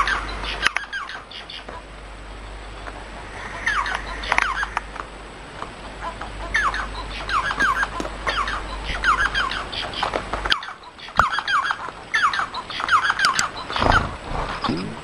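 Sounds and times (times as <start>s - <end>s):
finches chirping: 0.0s - 1.9s, 2.5s - 5.1s, 5.7s - 14.8s
low hum: 0.0s - 10.5s.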